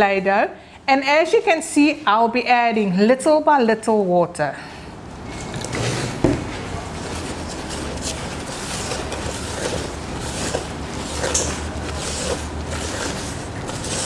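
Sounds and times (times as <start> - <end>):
dough rustling and squishing: 5.8 - 14.0.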